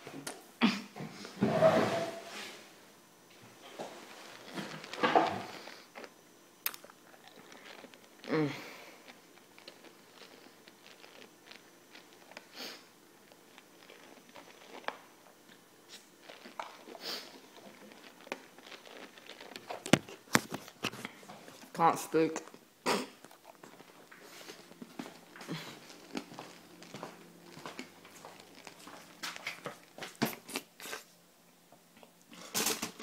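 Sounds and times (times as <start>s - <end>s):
wet sucking of candy: 4.0s - 21.6s, 22.8s - 31.2s.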